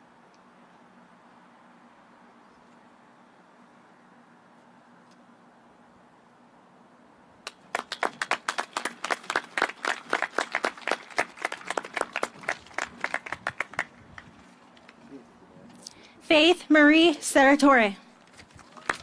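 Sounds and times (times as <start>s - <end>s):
people clapping: 7.4s - 15.0s, 18.5s - 19.0s.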